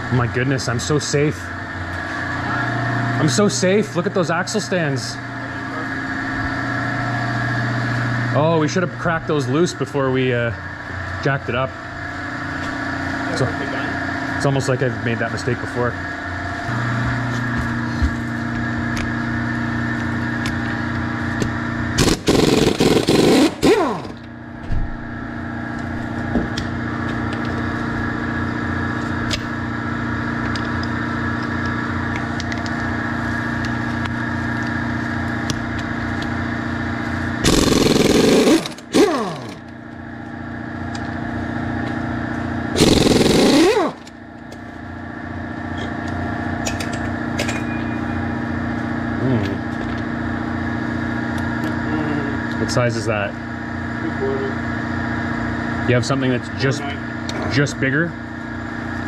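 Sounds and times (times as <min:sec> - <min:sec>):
steady motor hum: 0:00.0 - 0:59.0
impact wrench bursts: 0:22.0 - 0:24.3, 0:37.4 - 0:39.7, 0:42.7 - 0:44.2.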